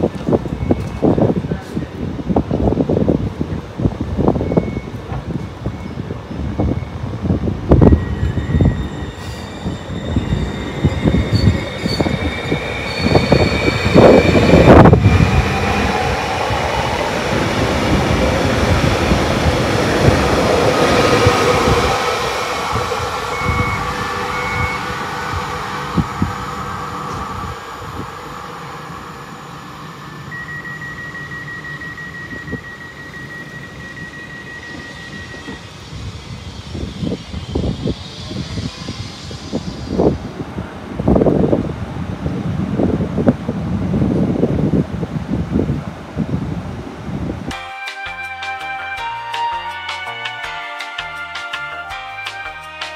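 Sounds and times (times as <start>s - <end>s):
steady high tone: 6.6s - 41.3s, 47.5s - 52.9s
electric traction whine: 7.8s - 41.3s.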